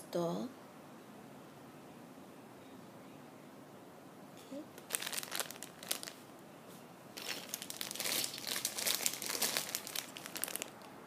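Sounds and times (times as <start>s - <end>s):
plastic bags crinkling: 4.8s - 6.2s, 7.2s - 10.9s.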